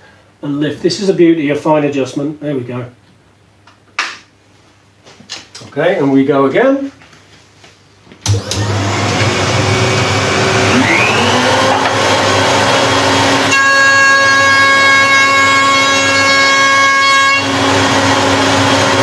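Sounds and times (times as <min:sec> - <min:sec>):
high whine of router cutter: 0:08.3 - 0:19.0
router motor running: 0:08.3 - 0:19.0.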